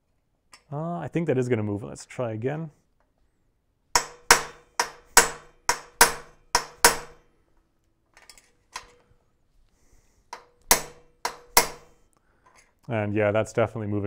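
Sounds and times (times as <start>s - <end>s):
hammer striking metal punch: 4.0s - 7.2s, 10.4s - 12.0s.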